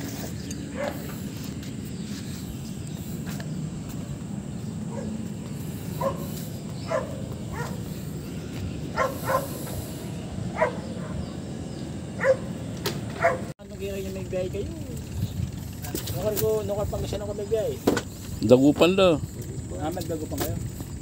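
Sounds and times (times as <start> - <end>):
wind rumble on microphone: 0.0 - 21.0
dog barking: 0.7 - 1.1, 4.9 - 5.2, 6.0 - 7.9, 9.0 - 9.6, 10.5 - 11.2, 12.2 - 12.6, 13.2 - 13.5.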